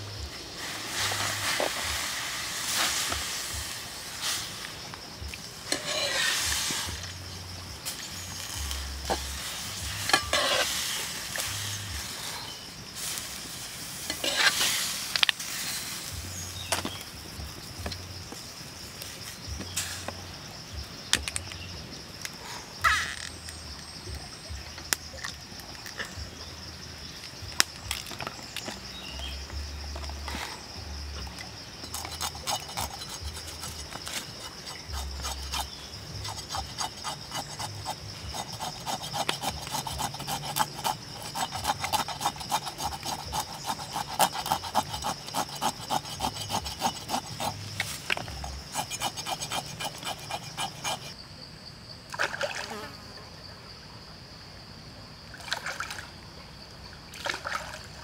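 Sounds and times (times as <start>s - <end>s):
knife scraping scaly skin: 5.7s - 7.0s, 31.9s - 51.2s.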